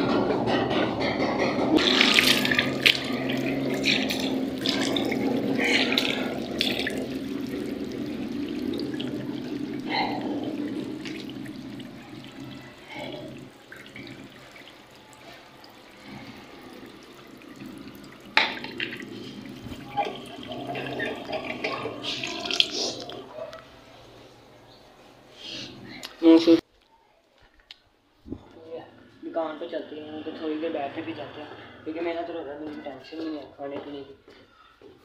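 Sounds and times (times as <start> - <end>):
water running from a tap: 1.8 - 23.4
water splashing face washing: 1.8 - 23.8.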